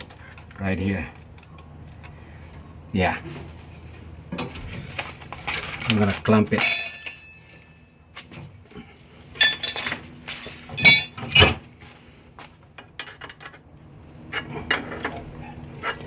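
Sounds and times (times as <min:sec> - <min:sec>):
metal tools clinking on fittings: 0:06.6 - 0:07.6, 0:09.4 - 0:10.0, 0:10.8 - 0:11.6.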